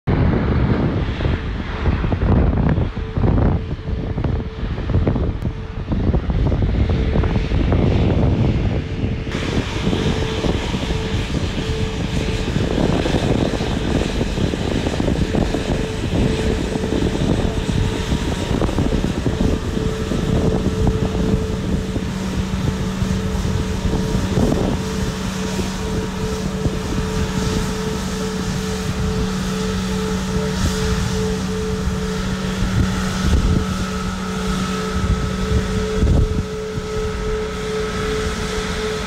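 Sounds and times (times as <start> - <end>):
jet engines idling: 0.1 - 39.0
low steady tone: 9.3 - 39.0.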